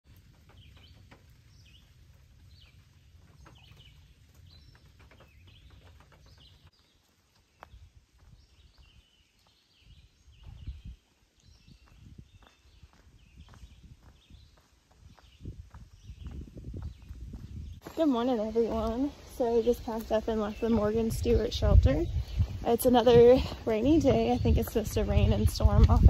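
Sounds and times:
songbirds chirping: 0.1s - 26.0s
soft low thumps: 11.6s - 26.0s.

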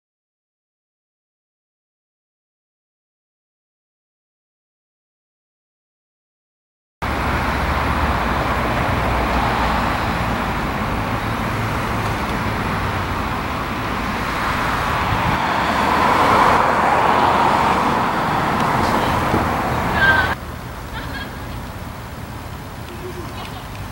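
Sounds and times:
road traffic rumble: 7.0s - 23.9s.

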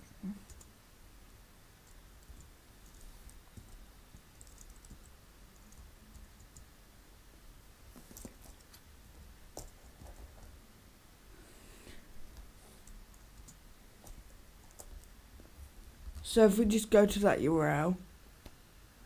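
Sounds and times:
low room hum: 0.0s - 19.0s
computer keyboard typing: 0.4s - 0.7s, 1.8s - 6.7s, 12.8s - 15.1s.

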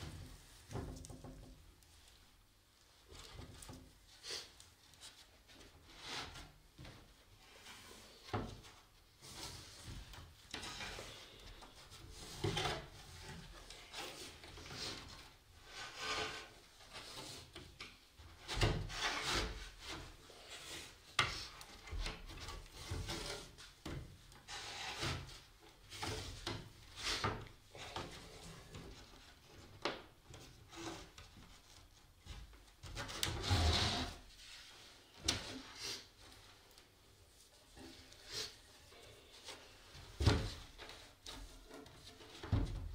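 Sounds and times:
wood scraping against wood: 9.2s - 36.4s.

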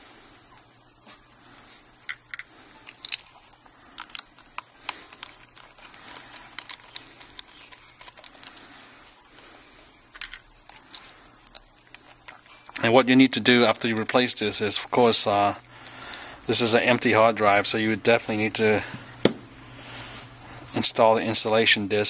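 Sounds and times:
screwdriver and metal parts clicking: 2.1s - 8.6s.

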